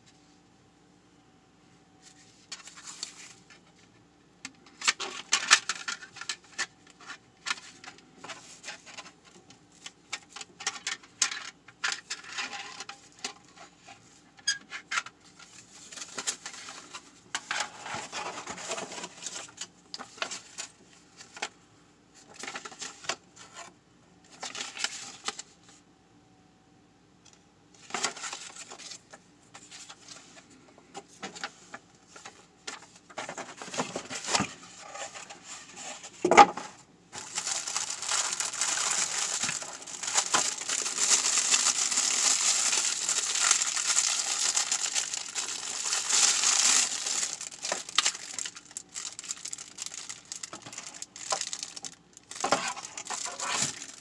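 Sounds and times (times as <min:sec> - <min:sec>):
paper and cardboard rustling: 0:02.0 - 0:03.8, 0:04.7 - 0:21.5, 0:22.2 - 0:23.7, 0:27.8 - 0:54.0
plastic bag crinkling: 0:37.2 - 0:54.0.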